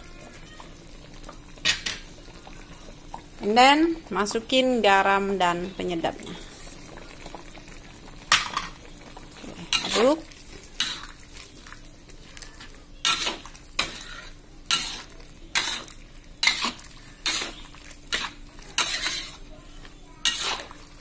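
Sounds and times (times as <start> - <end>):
faint hum: 0.0 - 21.0
metal spatula scraping a wok: 9.7 - 10.2, 13.0 - 19.5, 20.2 - 20.8.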